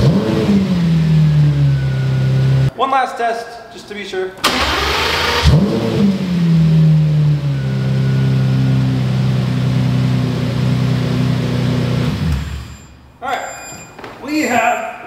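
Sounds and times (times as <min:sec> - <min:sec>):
car engine revving and idling: 0:00.0 - 0:02.7, 0:04.6 - 0:12.4
engine switching off: 0:04.4 - 0:12.7.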